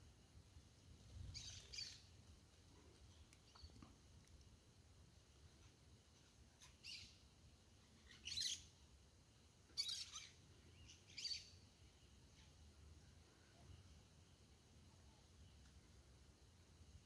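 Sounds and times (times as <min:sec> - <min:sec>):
bird chirping: 0:01.2 - 0:02.2, 0:03.1 - 0:04.0, 0:05.6 - 0:08.8, 0:09.7 - 0:12.8.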